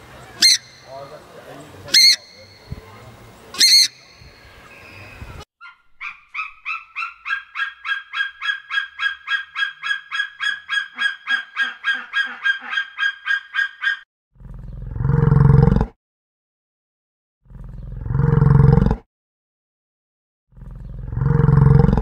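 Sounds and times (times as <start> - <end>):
eagle calling high notes: 0.4 - 1.2, 1.9 - 2.8, 3.5 - 14.0.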